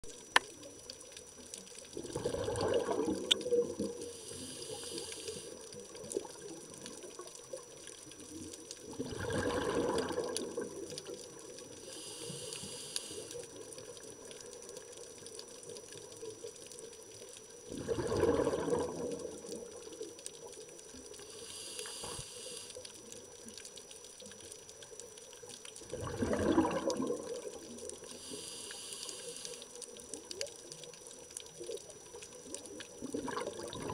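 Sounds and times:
exhaled bubbles gurgling: 0:00.0 - 0:23.6, 0:24.7 - 0:33.9
regulator inhale hiss: 0:03.9 - 0:05.7, 0:11.8 - 0:13.5, 0:21.2 - 0:22.9, 0:28.0 - 0:29.8.

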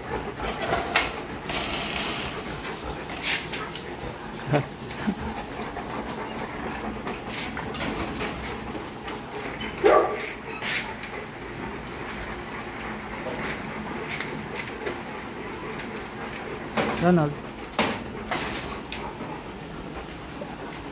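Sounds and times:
dogs barking: 0:09.6 - 0:11.4.

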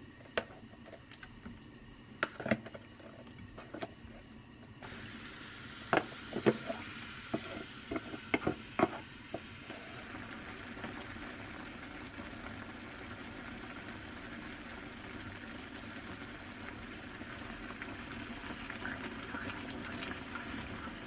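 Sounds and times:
steady hiss: 0:00.0 - 0:10.1.

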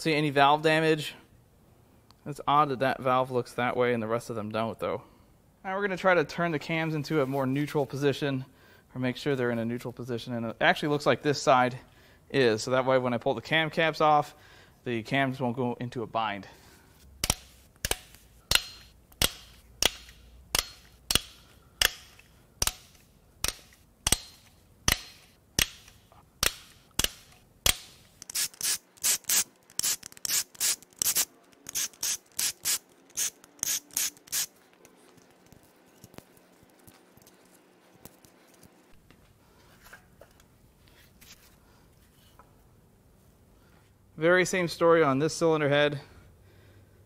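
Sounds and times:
ratchet wrench clicking: 0:17.2 - 0:34.5
tool handling: 0:17.2 - 0:42.5.

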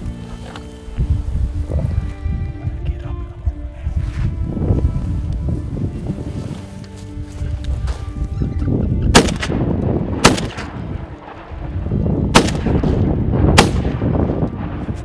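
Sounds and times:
steady low rumble: 0:00.0 - 0:15.0
shotgun shots: 0:09.1 - 0:10.8, 0:12.3 - 0:14.3.

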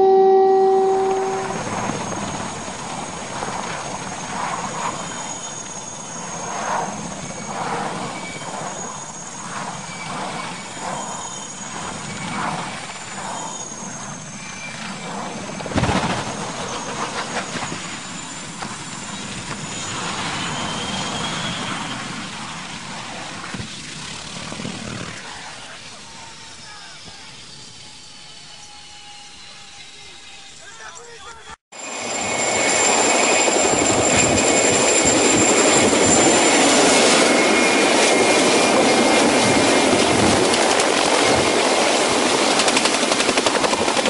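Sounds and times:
helicopter turbine engines whining: 0:00.0 - 0:44.0
loud crash of helicopter: 0:14.7 - 0:25.3, 0:32.0 - 0:44.0.

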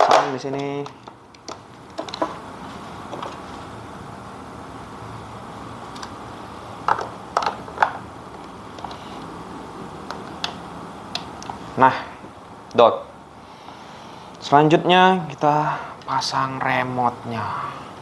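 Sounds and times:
steady low hiss: 0:00.0 - 0:18.0
plastic clicks and knocks: 0:06.9 - 0:08.0.

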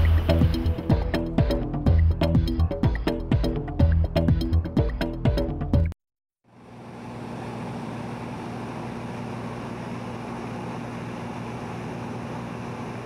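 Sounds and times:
aircraft engine drone: 0:06.5 - 0:13.0.

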